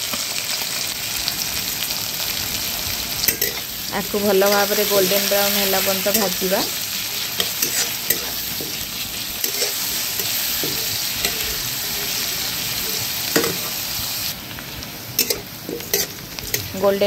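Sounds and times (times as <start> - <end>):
onions sizzling in oil: 0.0 - 17.0
spatula scraping pan: 3.2 - 13.8, 15.2 - 16.8.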